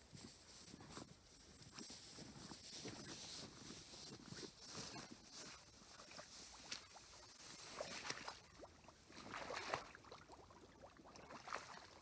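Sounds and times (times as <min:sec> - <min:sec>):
wading through water: 0:02.0 - 0:12.0.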